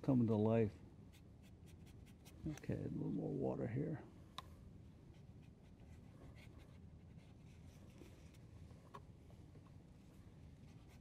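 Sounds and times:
faint room hum: 0:00.0 - 0:11.0
paintbrush scratching on paper: 0:01.1 - 0:02.4.

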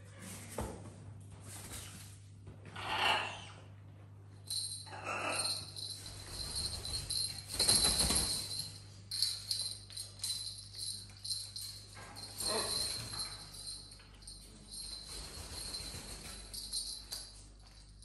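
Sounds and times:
jingle bell toy jingling: 0:04.5 - 0:18.0.

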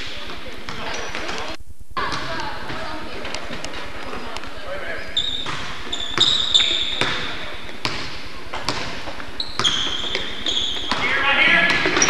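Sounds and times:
sneaker squeaks: 0:00.0 - 0:02.8, 0:05.0 - 0:12.0
basketball bouncing on wooden floor: 0:07.0 - 0:12.0.

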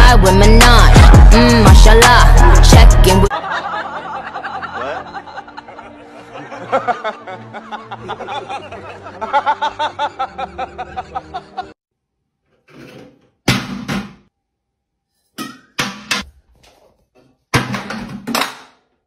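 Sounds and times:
plastic bottles clattering down: 0:17.5 - 0:18.8.

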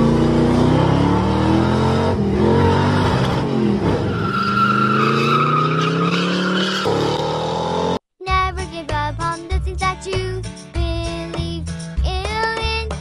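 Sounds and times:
car engine revving: 0:00.0 - 0:08.0
tire squeal: 0:02.4 - 0:07.8.

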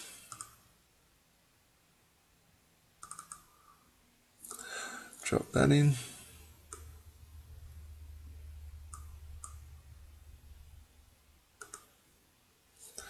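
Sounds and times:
low steady hum: 0:00.0 - 0:13.0
computer mouse clicks: 0:00.1 - 0:00.6, 0:03.0 - 0:03.5, 0:04.4 - 0:04.7, 0:06.7 - 0:07.0, 0:08.9 - 0:09.7, 0:11.6 - 0:12.0.

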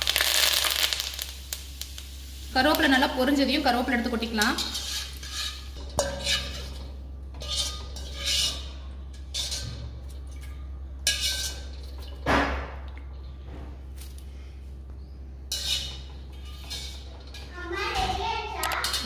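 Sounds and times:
metal skimmer scraping a wok: 0:02.6 - 0:13.4, 0:15.5 - 0:19.0.

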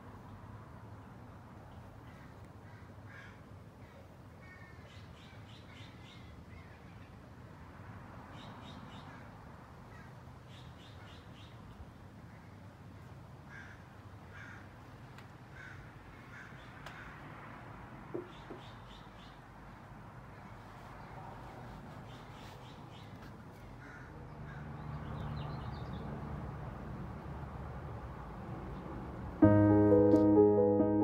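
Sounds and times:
low background noise: 0:00.0 - 0:31.0.

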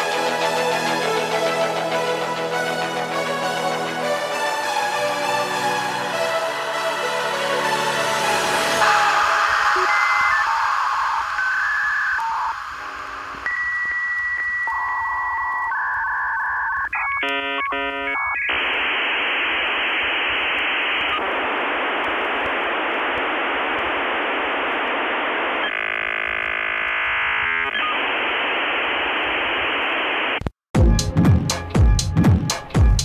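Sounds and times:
modem line hiss: 0:08.4 - 0:30.5
dial-up modem tones: 0:08.8 - 0:29.4.

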